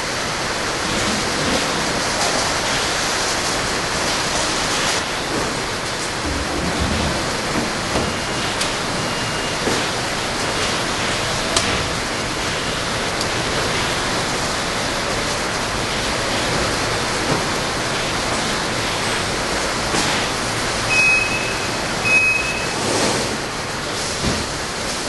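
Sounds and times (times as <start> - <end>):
short high beeps: 20.9 - 22.8.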